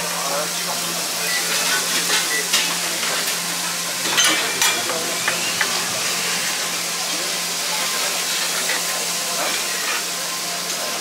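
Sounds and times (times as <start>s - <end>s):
frying sizzle: 0.0s - 11.0s
metal utensils clinking: 1.5s - 7.4s.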